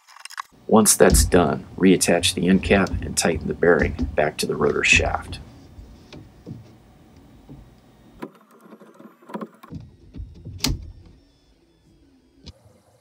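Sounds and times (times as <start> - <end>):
plastic parts clicking and knocking: 0.1 - 11.2.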